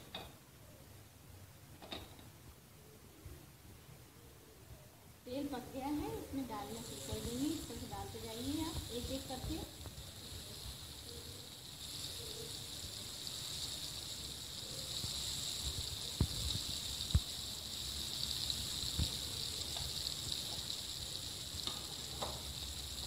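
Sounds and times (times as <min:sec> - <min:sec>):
patties sizzling in hot oil: 0:05.3 - 0:23.0.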